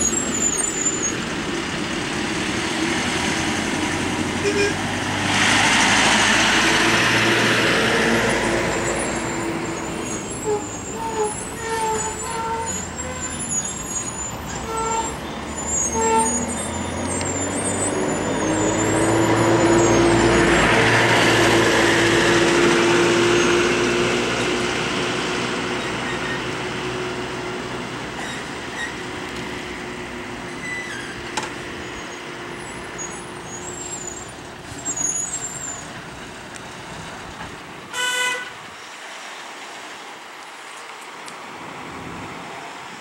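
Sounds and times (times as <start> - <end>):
bus diesel engine droning: 0.0 - 38.7
vehicle horn toot: 4.4 - 4.8, 14.6 - 15.2, 37.9 - 38.6.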